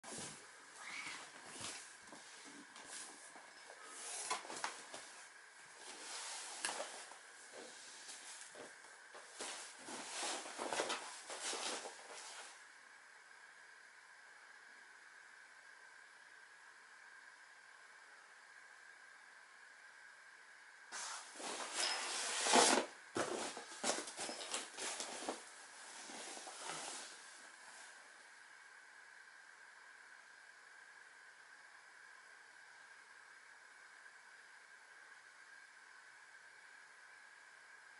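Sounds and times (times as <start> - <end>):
body rustling on vinyl mat: 0.1 - 12.6, 21.0 - 28.0.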